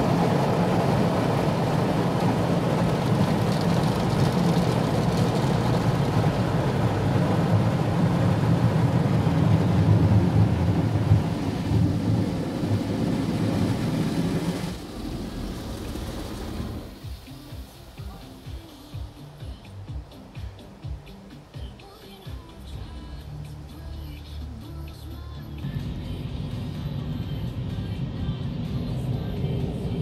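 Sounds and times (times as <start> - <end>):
low rumble: 0.0 - 17.2, 25.6 - 30.0
car wash water spraying: 0.0 - 19.4.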